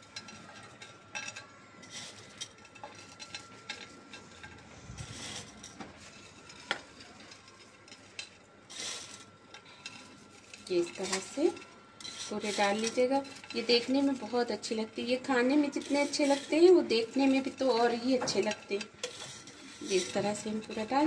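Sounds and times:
soft rustles: 0:01.9 - 0:14.6.

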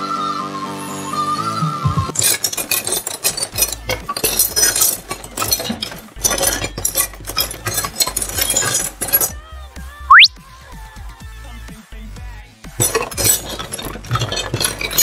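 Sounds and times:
plastic toy dishes clattering: 0:02.1 - 0:09.4, 0:12.8 - 0:15.0.

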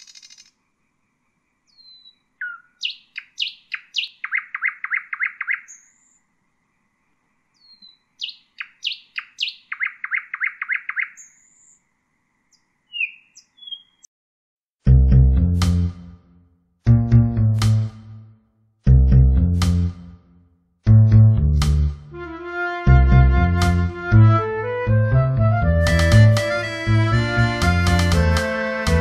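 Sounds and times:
nightingale singing: 0:00.0 - 0:00.6, 0:01.7 - 0:06.2, 0:07.6 - 0:11.8, 0:12.5 - 0:14.1.

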